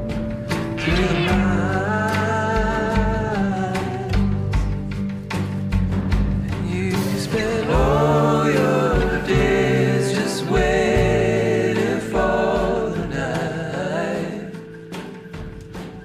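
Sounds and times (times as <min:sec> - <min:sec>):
low bass notes: 0:00.0 - 0:14.5
person singing: 0:00.6 - 0:04.8, 0:06.5 - 0:15.1.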